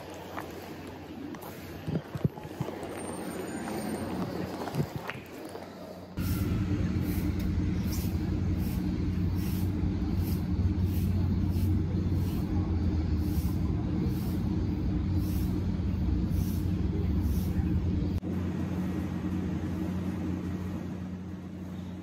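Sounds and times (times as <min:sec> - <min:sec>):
low mechanical hum: 0:06.0 - 0:22.0.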